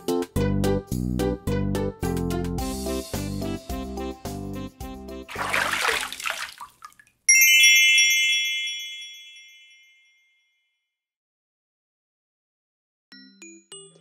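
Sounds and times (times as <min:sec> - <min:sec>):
sparkling chime sound effect: 0:07.3 - 0:10.5.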